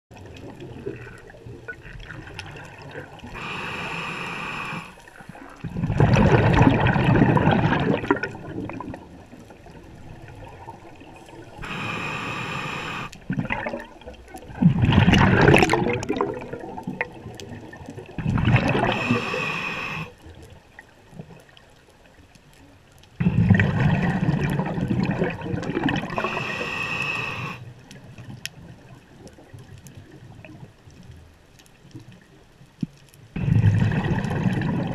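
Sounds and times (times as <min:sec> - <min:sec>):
diver inhaling through regulator: 0:03.3 - 0:05.2, 0:11.2 - 0:13.2, 0:18.6 - 0:20.2, 0:26.0 - 0:27.7
exhaled bubbles rushing: 0:04.4 - 0:20.1, 0:23.2 - 0:27.6, 0:33.4 - 0:34.9.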